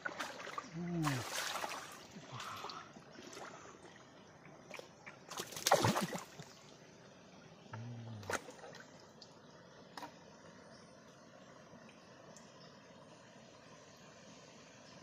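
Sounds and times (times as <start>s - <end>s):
water splashing and sloshing: 0.0s - 6.9s, 8.2s - 10.2s.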